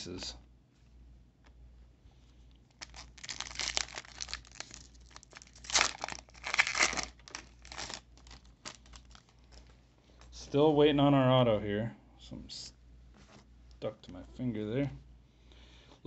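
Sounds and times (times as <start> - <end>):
plastic wrapper crinkling and tearing: 2.7 - 9.7.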